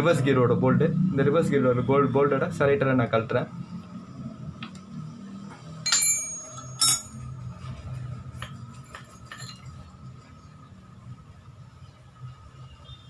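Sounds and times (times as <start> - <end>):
small metal parts clinking: 5.9 - 7.3, 8.4 - 9.8.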